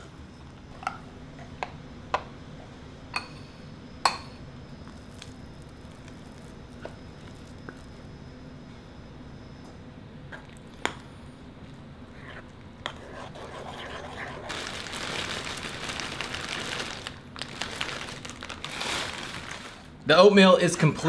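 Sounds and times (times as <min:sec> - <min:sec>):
plastic bag crinkling: 0:14.5 - 0:20.0.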